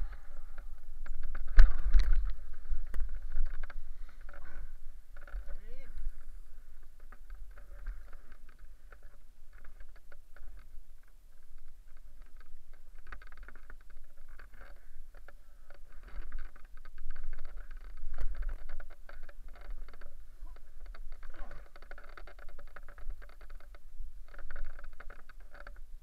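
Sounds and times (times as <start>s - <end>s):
wind buffeting microphone: 0.0s - 8.6s
paraglider wing rustling and crackling: 0.0s - 26.0s.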